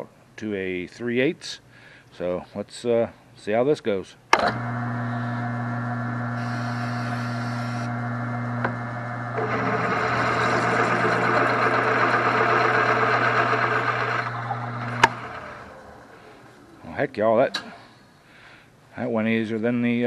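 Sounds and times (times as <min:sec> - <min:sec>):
drill press motor humming: 0:04.4 - 0:16.8
drill bit cutting into metal: 0:06.3 - 0:16.2.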